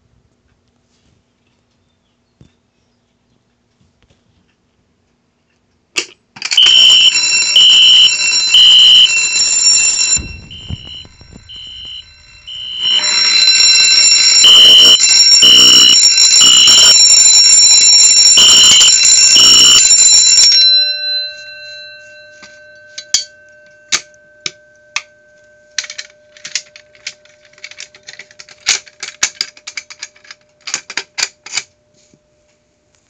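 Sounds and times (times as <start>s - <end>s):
fire alarm horn pulses: 6.5s - 21.5s
alarm bell ringing: 6.5s - 28.4s.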